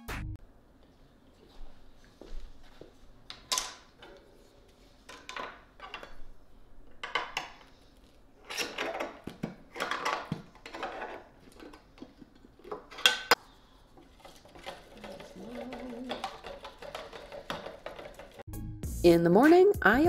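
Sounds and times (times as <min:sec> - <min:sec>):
metal can lid scraping and clicking: 0:14.1 - 0:18.4.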